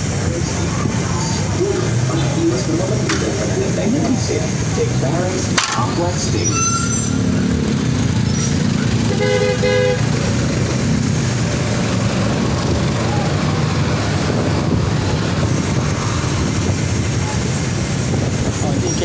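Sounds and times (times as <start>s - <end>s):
road traffic rumbling: 0.0s - 19.0s
vehicle horn toot: 9.1s - 10.2s.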